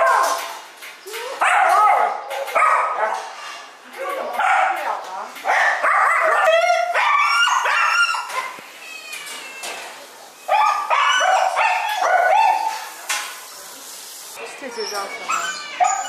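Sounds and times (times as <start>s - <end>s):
dogs barking: 0.0s - 0.6s, 1.4s - 3.4s, 4.3s - 8.6s, 10.5s - 13.0s.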